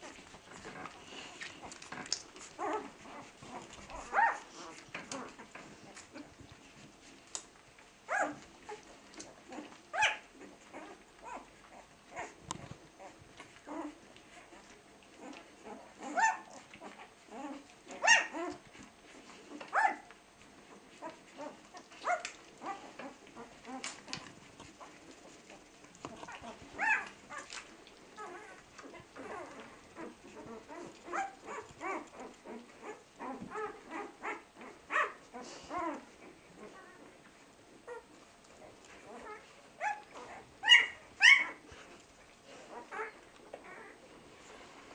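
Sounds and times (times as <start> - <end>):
puppies squeaking and whimpering: 0.0 - 6.8, 8.1 - 12.4, 13.0 - 20.1, 20.7 - 37.1, 37.8 - 44.0.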